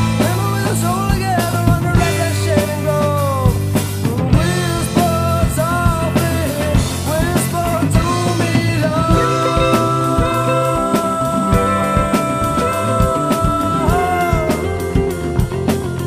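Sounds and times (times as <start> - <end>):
bass: 0.0 - 16.0
drum kit beat: 0.0 - 16.0
pitch-bending melody: 9.1 - 15.8.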